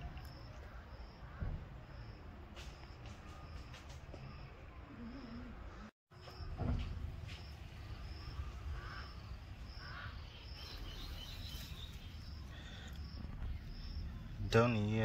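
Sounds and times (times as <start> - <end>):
faint calls: 7.9 - 14.9.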